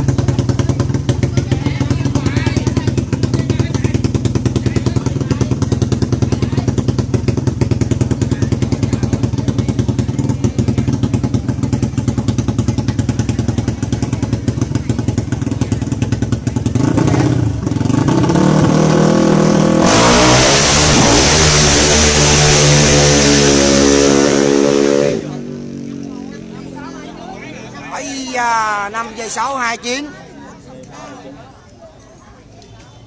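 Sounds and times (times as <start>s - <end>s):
motorcycle engine revving and accelerating: 0.0s - 28.0s
loud rushing noise: 18.2s - 25.6s.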